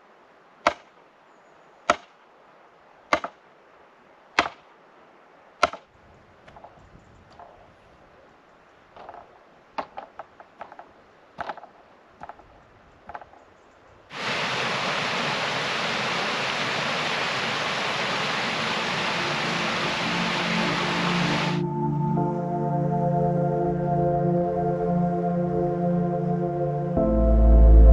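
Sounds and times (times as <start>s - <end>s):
knocks and clicks on bamboo poles: 0.6s - 1.0s, 1.9s - 2.2s, 3.1s - 3.4s, 4.4s - 4.7s, 5.6s - 7.6s, 8.9s - 13.4s
loud rushing hiss: 14.1s - 21.6s.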